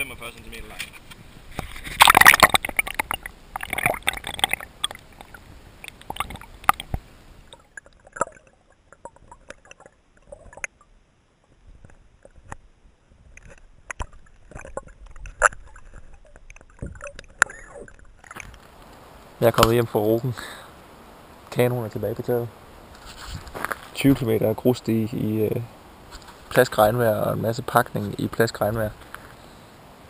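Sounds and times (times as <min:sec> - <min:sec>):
loud splash: 0:01.8 - 0:06.9.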